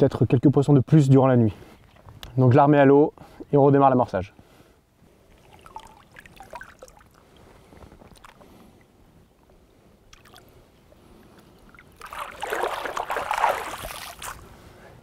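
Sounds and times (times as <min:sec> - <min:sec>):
water lapping and dripping: 0:05.2 - 0:08.9, 0:10.1 - 0:14.5
fish splashing: 0:05.3 - 0:07.2, 0:11.7 - 0:14.4.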